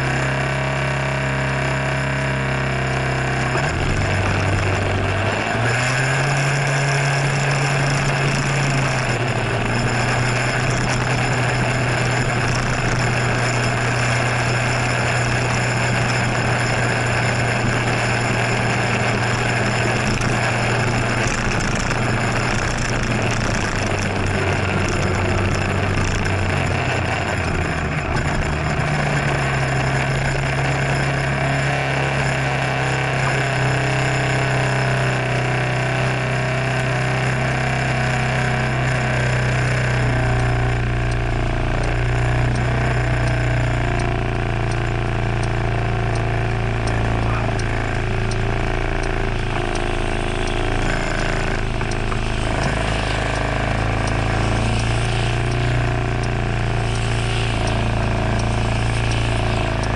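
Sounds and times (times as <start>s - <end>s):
scooter engine idling: 7.0s - 31.3s, 40.3s - 59.9s
light ticks: 36.1s - 59.9s.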